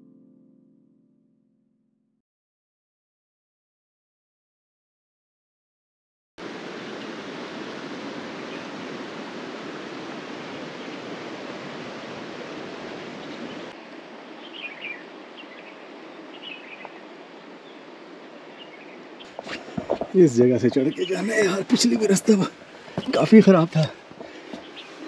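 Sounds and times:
river rushing: 0:06.4 - 0:25.0.

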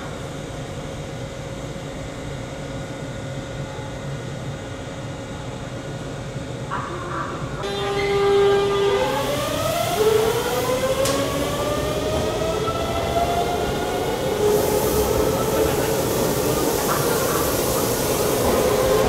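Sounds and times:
train inverter and motors whining: 0:06.5 - 0:19.0.

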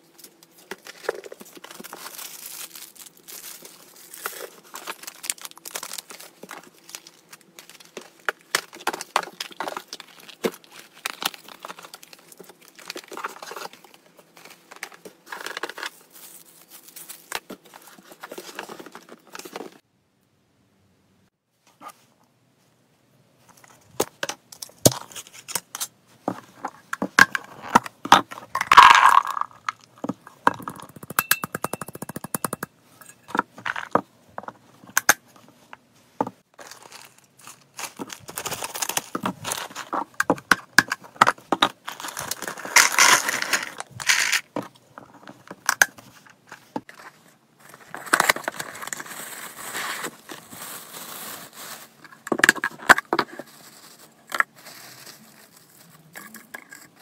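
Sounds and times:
plastic bags crinkling: 0:00.3 - 0:19.8, 0:36.5 - 0:44.5, 0:47.6 - 0:56.4.

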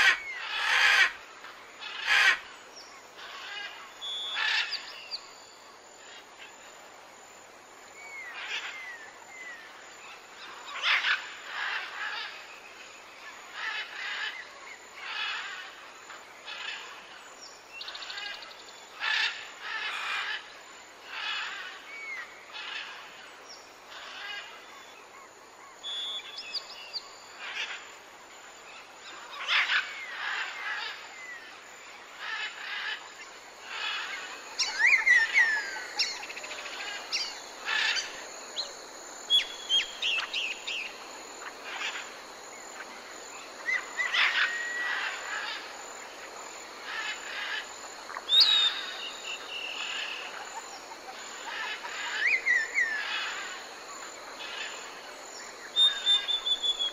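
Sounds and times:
faint steady high hiss: 0:00.0 - 0:56.9
birds chirping and whistling: 0:48.3 - 0:50.2, 0:55.8 - 0:56.9.

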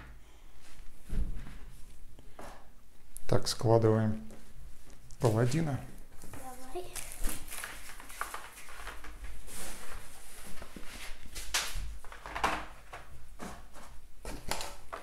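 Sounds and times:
cards rustling: 0:06.4 - 0:09.2.

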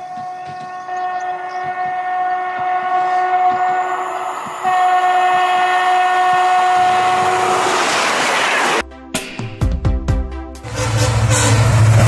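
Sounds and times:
train horn blasts: 0:00.0 - 0:07.9, 0:10.6 - 0:12.0.

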